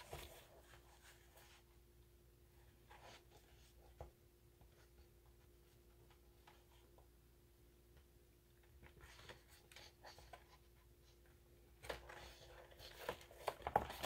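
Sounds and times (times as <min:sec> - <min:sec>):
paper pages rustling: 0:00.0 - 0:01.6.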